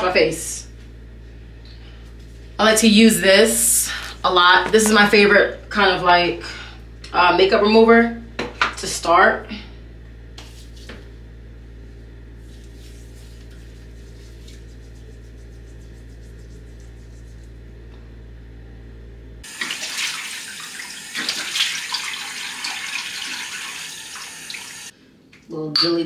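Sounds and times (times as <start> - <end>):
low steady hum: 0.0 - 19.5
tap water running into sink: 19.5 - 24.9.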